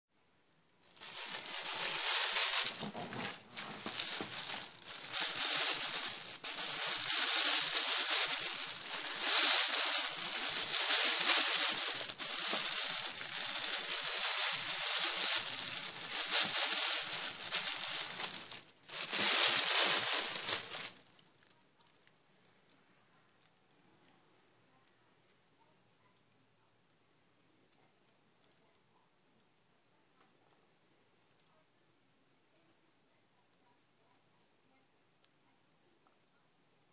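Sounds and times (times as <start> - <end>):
material rustling and crinkling: 0.8 - 22.2.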